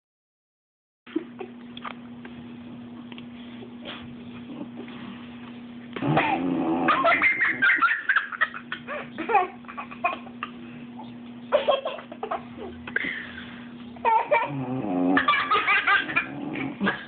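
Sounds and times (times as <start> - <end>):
young child giggling: 6.9 - 10.6, 11.5 - 12.8.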